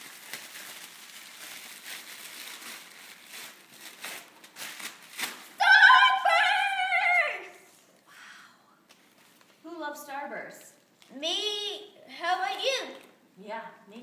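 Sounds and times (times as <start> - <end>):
paper rustling: 8.9 - 9.6.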